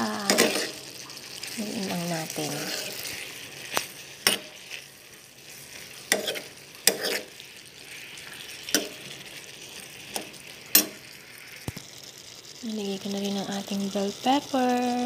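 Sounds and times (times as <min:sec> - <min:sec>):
vegetables sizzling in a frying pan: 0:00.0 - 0:15.0
spatula scraping and knocking pan: 0:00.2 - 0:00.8, 0:02.4 - 0:07.4, 0:08.2 - 0:11.1.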